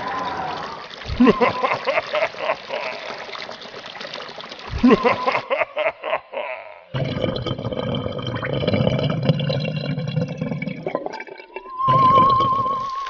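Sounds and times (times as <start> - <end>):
cartoon water gurgling and bubbling: 0.0 - 13.0
wavering high tone: 11.7 - 13.0.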